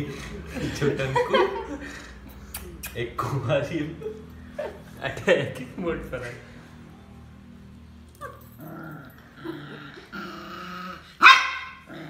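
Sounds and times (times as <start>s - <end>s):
puppy growling: 8.1s - 12.0s
puppy yapping: 11.2s - 11.8s.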